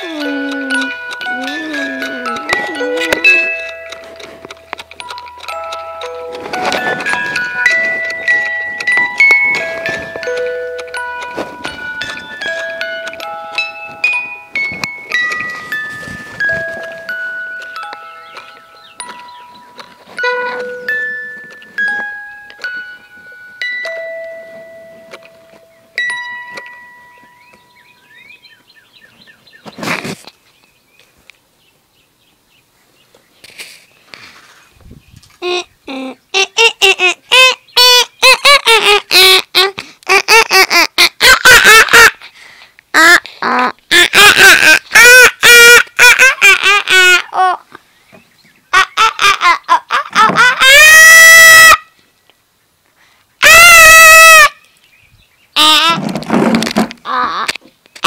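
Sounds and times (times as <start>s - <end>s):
child squealing: 0.0s - 3.6s, 35.4s - 42.2s, 43.0s - 47.6s, 48.8s - 51.9s, 53.4s - 54.6s, 55.6s - 56.0s, 57.0s - 57.6s
ringing tone: 0.0s - 28.2s
rustling from handling microphone: 6.3s - 23.5s, 29.6s - 31.3s, 33.4s - 35.4s
child screaming: 43.0s - 47.6s, 49.9s - 51.8s, 53.4s - 54.6s, 57.0s - 57.5s.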